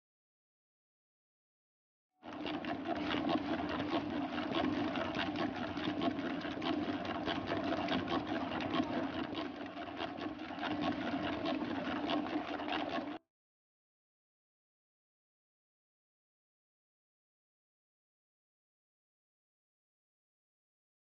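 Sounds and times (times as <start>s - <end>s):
electric mixer humming and rattling: 2.2s - 13.2s.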